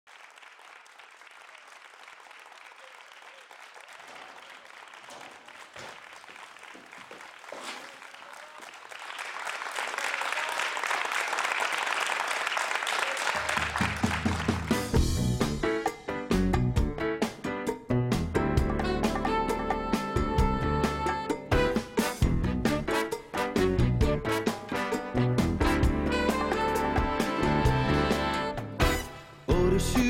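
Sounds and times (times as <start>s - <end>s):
audience applauding: 0.1s - 15.0s
music: 13.5s - 30.0s.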